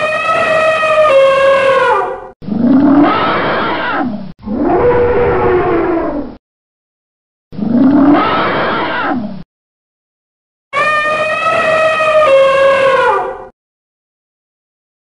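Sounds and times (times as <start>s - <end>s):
elephant trumpeting: 0.0s - 2.3s, 10.8s - 13.5s
elephant roaring calls: 10.8s - 13.5s.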